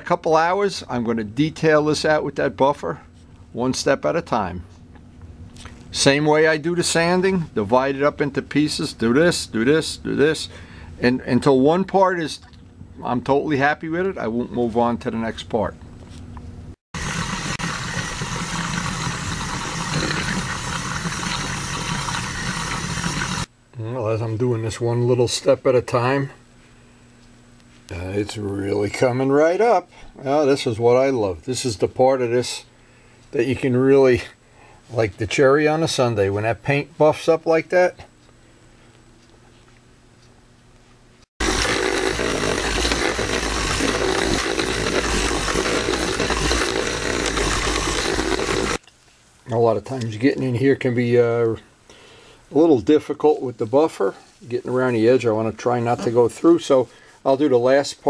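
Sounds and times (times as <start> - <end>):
electric polisher motor drone: 41.4 - 48.8.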